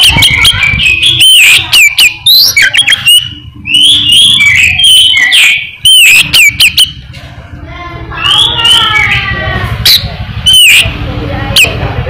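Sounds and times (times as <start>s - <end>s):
bird singing whistled notes: 0.0s - 7.1s, 8.2s - 11.7s.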